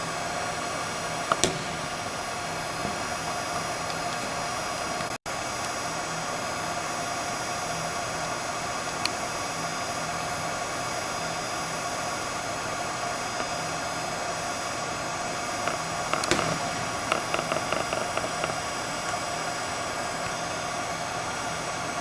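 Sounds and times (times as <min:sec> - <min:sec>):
ventilation hum: 0:00.0 - 0:22.0
football kick thud: 0:01.3 - 0:02.2, 0:16.1 - 0:18.2.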